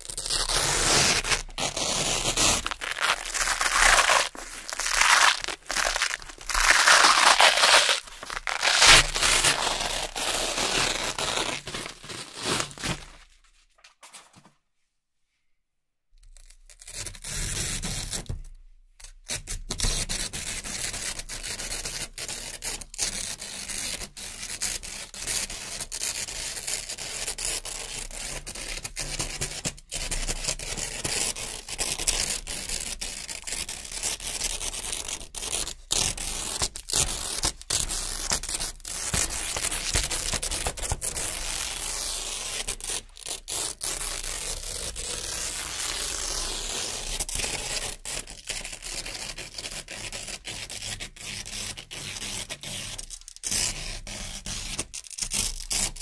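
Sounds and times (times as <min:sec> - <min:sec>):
velcro strips ripping: 0:00.0 - 0:13.4, 0:30.0 - 0:56.0.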